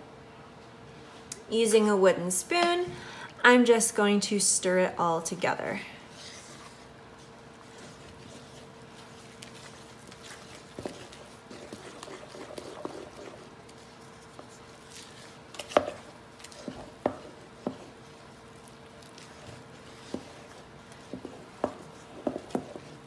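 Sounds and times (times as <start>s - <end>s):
spoon stirring batter: 6.1s - 23.0s.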